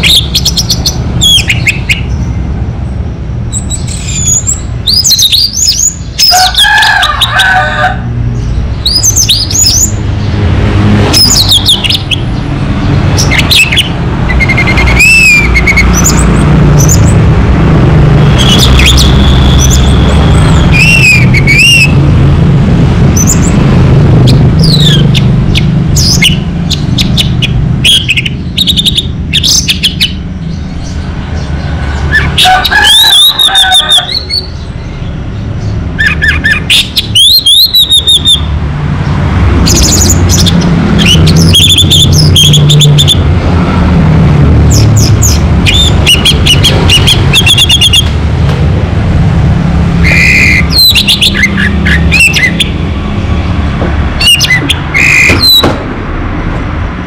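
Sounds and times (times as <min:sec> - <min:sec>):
thrush singing whistled phrases: 0:00.0 - 0:02.1, 0:11.2 - 0:12.3, 0:13.2 - 0:17.1, 0:18.3 - 0:22.0, 0:24.3 - 0:30.2, 0:36.0 - 0:38.5, 0:39.7 - 0:43.2, 0:45.0 - 0:48.1, 0:50.0 - 0:52.8, 0:54.2 - 0:55.7
steady low rumble: 0:07.2 - 0:33.4, 0:38.4 - 0:47.4, 0:48.0 - 0:57.0.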